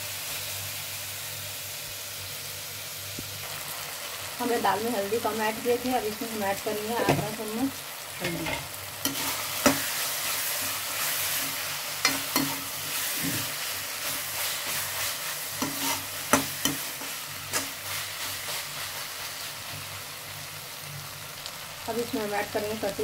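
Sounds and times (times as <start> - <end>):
vegetables sizzling in oil: 0.0 - 23.0
metal spatula scraping and knocking pan: 8.2 - 14.8, 15.5 - 17.8.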